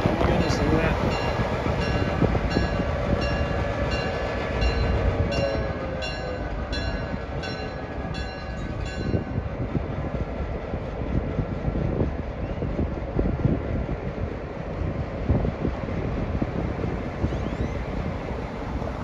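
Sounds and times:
diesel locomotive engine rumbling: 0:00.0 - 0:19.0
railroad crossing bell dinging: 0:00.2 - 0:09.5.

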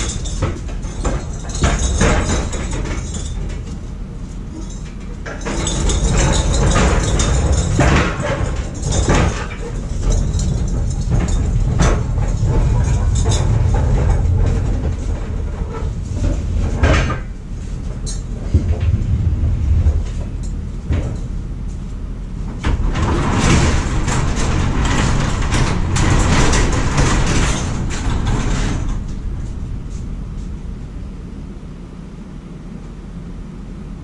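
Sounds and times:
rattling scraping noise: 0:04.5 - 0:31.2
casters rumbling on concrete: 0:05.2 - 0:31.4.

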